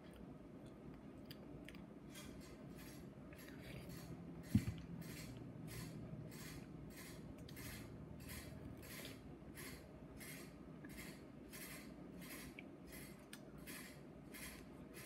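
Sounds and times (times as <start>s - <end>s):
person chewing: 0.0s - 2.3s.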